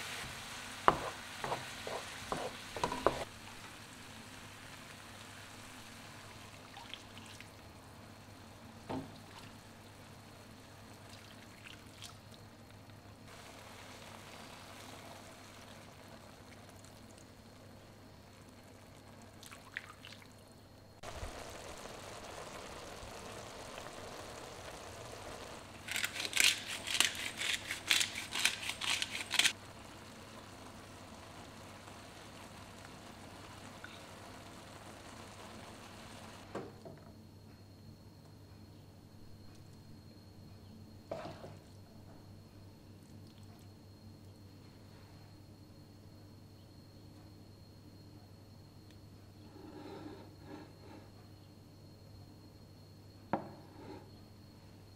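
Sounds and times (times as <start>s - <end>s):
rice popping and crackling: 0.0s - 7.7s, 13.3s - 19.2s, 21.0s - 36.5s
risotto simmering in a pan: 0.0s - 37.2s.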